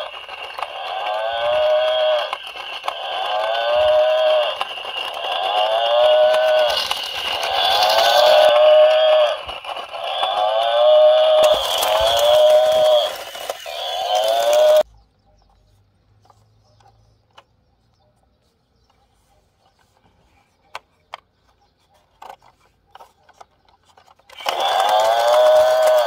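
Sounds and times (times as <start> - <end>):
plastic toy clicks: 0.0 - 14.8, 20.7 - 26.0
toy playing recorded moo: 0.0 - 14.8.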